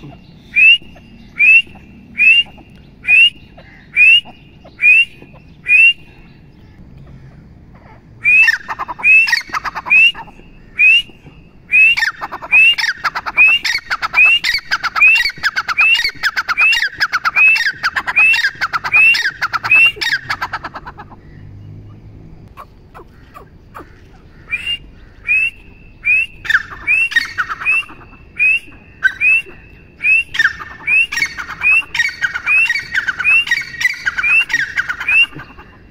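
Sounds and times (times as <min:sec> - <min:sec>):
francolin calling: 0:00.0 - 0:35.9.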